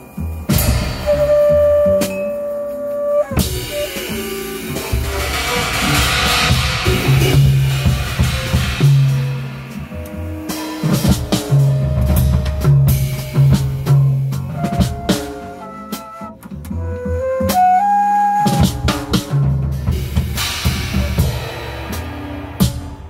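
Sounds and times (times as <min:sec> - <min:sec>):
drum kit: 0:00.0 - 0:23.0
bass guitar low notes: 0:03.4 - 0:17.5.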